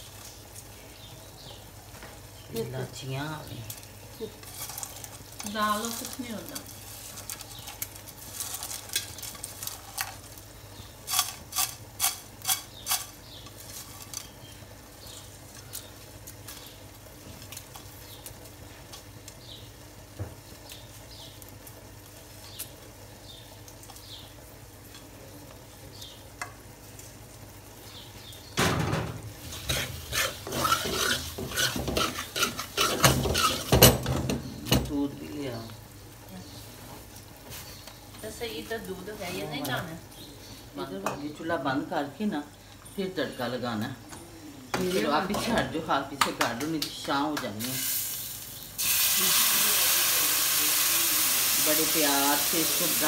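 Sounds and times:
faint sizzling: 0.0 - 53.0
spoon scraping and clattering pan: 11.1 - 14.3, 29.5 - 34.5.

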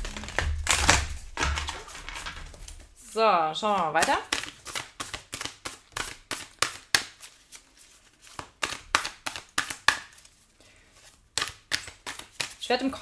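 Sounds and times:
cards being shuffled: 0.0 - 2.9, 3.7 - 12.6.

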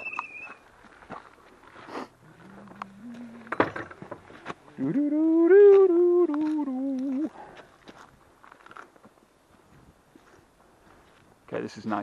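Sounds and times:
person humming a tune: 2.4 - 3.5, 4.7 - 7.4.

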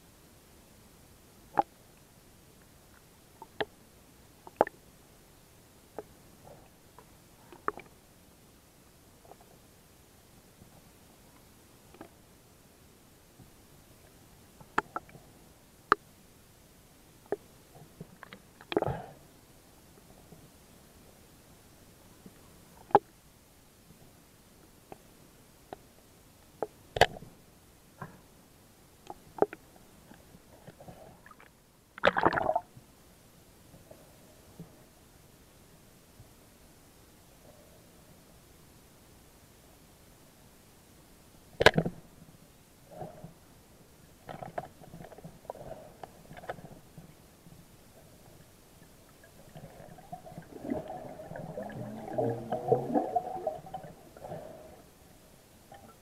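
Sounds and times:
underwater clicks and knocks: 41.6 - 42.0
underwater rushing burst: 49.5 - 54.8.

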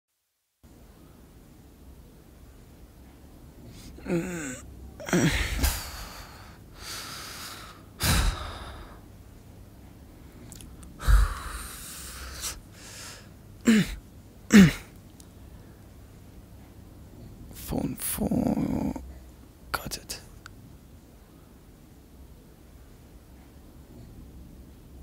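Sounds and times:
heavy breathy exhales: 3.7 - 9.0, 11.0 - 13.9
man groaning: 3.8 - 6.4, 13.7 - 14.9.

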